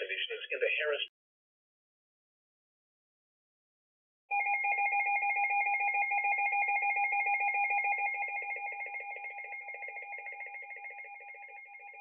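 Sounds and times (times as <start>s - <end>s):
pulsing electronic alarm warble: 4.3s - 12.0s.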